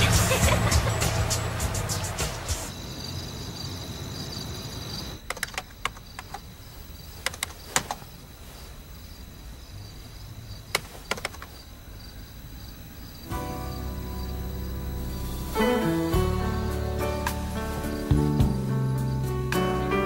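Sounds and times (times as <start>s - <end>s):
crickets chirping: 0.0s - 20.0s
computer mouse clicks: 5.2s - 6.4s, 7.2s - 8.0s.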